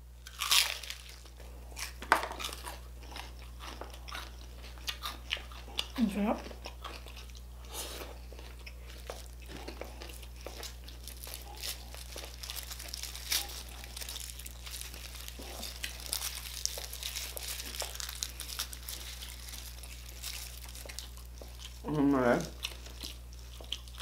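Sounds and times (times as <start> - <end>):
crunching of crispy food: 0.2 - 24.0
chewing: 0.3 - 21.8, 22.5 - 24.0.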